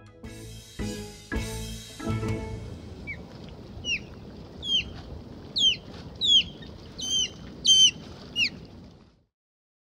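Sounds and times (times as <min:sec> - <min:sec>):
osprey whistled chirps: 0:03.8 - 0:05.0, 0:05.6 - 0:08.6.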